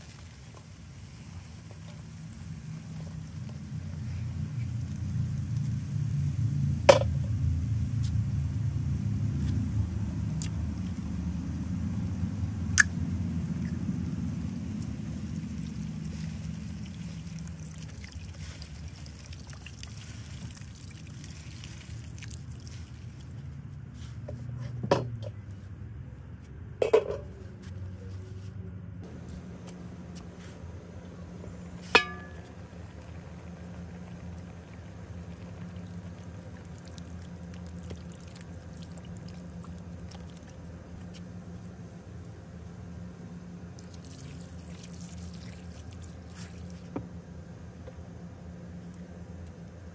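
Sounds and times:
low rumble: 3.2 - 17.9.

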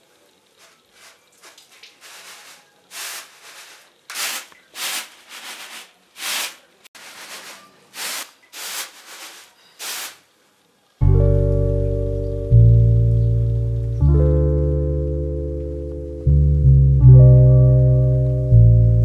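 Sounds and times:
rice swishing in woven basket: 0.6 - 10.2.

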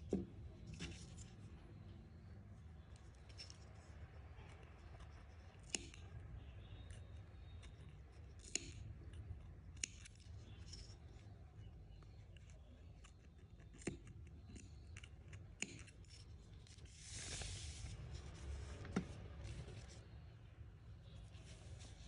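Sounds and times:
scissors snipping yarn: 4.6 - 6.1, 6.8 - 10.8, 12.2 - 16.3.

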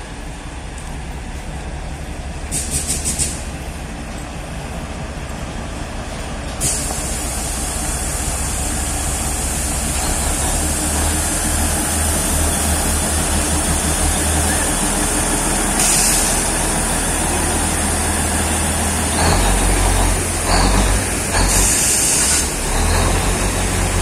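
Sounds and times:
diesel locomotive engine rumble: 0.0 - 24.0
high hiss: 6.6 - 19.2.

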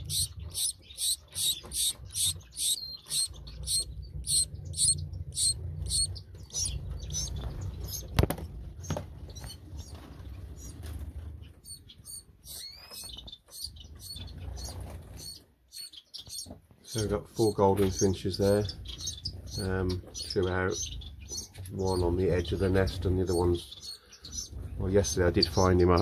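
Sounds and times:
finches chirping: 0.0 - 8.2, 8.8 - 10.8, 11.4 - 26.0
low rumble: 1.9 - 11.5.

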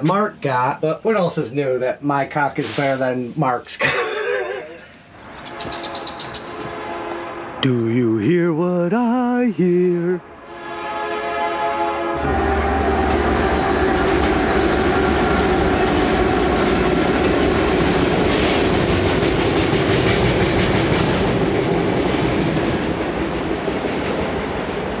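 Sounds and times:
freight train wheels rumbling: 12.2 - 25.0.

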